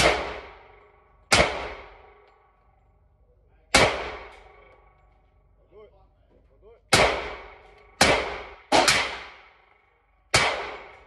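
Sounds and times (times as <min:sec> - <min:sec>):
pistol shots echoing indoors: 0:06.9 - 0:11.0.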